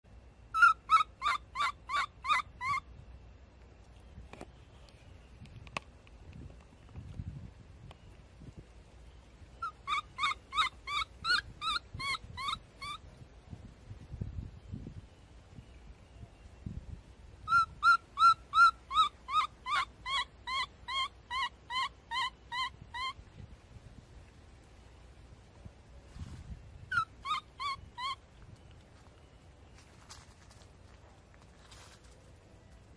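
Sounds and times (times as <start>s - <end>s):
baby monkey screaming: 0.5s - 2.9s, 9.6s - 13.0s, 17.5s - 23.2s, 26.9s - 28.2s.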